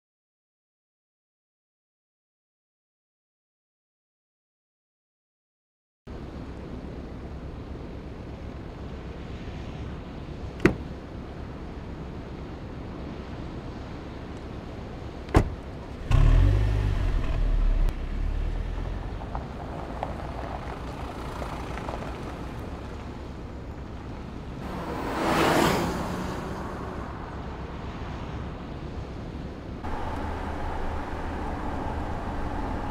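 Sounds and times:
car engine starting: 15.9s - 23.0s
car driving past: 16.0s - 23.0s, 24.6s - 28.6s, 29.8s - 32.9s.

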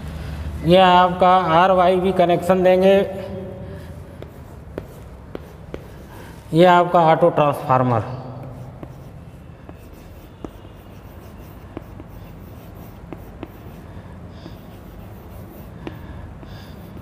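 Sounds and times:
chalk scratching on blackboard: 3.8s - 6.6s, 8.5s - 17.0s
chalk tapping on board: 4.1s - 6.5s, 8.4s - 17.0s.

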